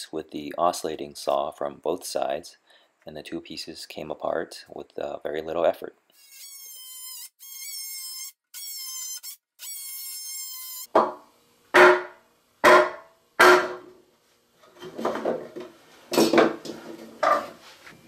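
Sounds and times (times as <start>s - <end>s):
oscillating multi-tool cutting wood: 6.2s - 10.9s.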